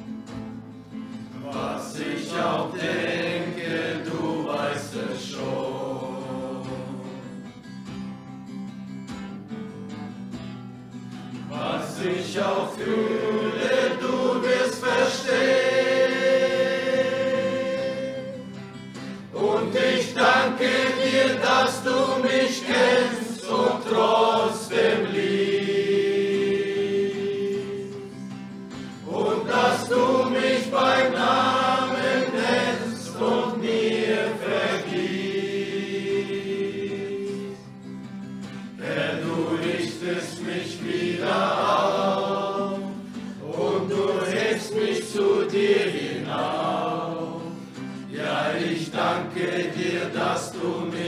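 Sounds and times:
group singing worship song: 0:01.3 - 0:07.6, 0:11.4 - 0:37.9, 0:38.5 - 0:51.0.

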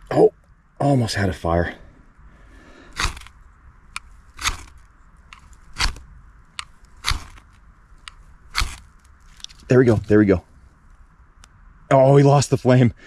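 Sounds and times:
knife scraping ferrocerium rod: 0:03.0 - 0:03.3, 0:04.4 - 0:04.7.

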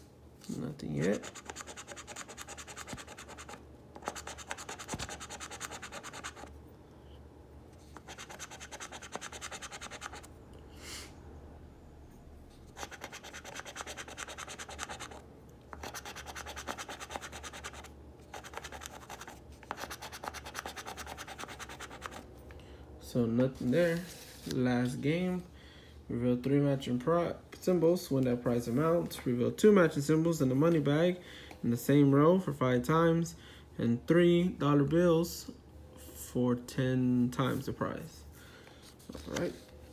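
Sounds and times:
coin scratching lottery ticket: 0:01.0 - 0:06.5, 0:08.0 - 0:10.3, 0:12.7 - 0:15.2, 0:15.8 - 0:22.2.

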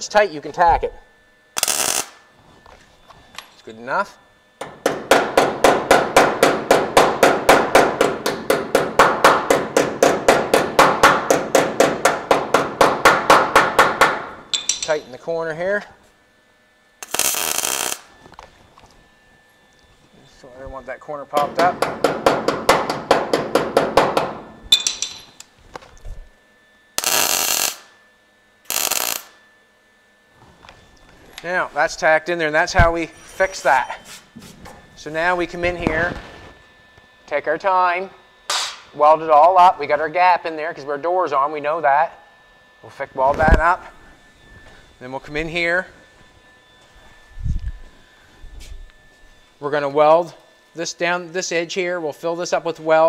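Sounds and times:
welder crackling: 0:01.5 - 0:02.2, 0:17.0 - 0:18.4, 0:27.0 - 0:28.0, 0:28.6 - 0:29.4
hammer tapping on sheet steel: 0:04.6 - 0:14.8, 0:21.4 - 0:25.2.

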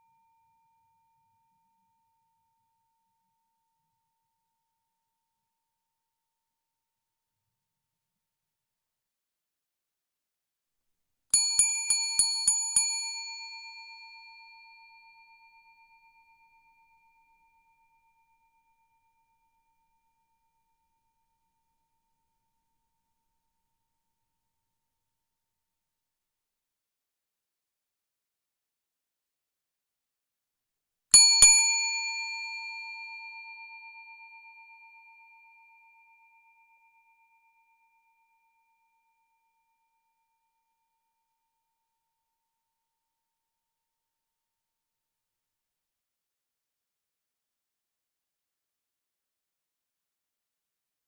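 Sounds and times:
desk bell dings: 0:31.2 - 0:32.6.

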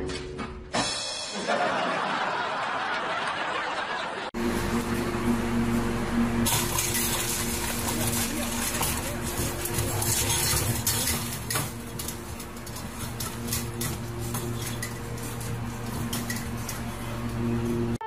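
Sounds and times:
metal bowl clinking against cage: 0:06.5 - 0:17.4.

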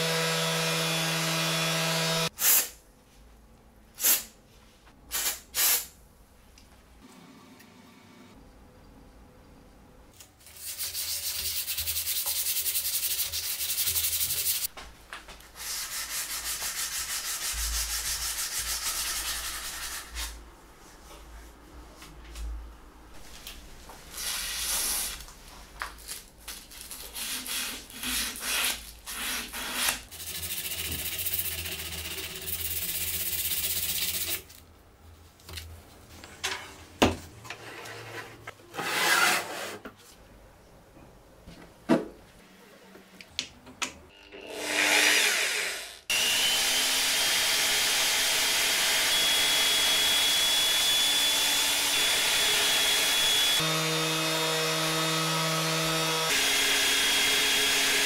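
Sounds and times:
sandpaper rubbing on metal: 0:10.5 - 0:14.7, 0:15.6 - 0:20.4, 0:27.1 - 0:34.4.

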